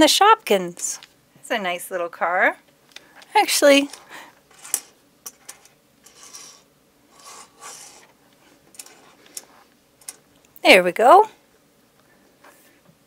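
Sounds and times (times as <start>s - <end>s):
toy car scraping on tabletop: 4.5s - 5.0s, 6.0s - 8.2s.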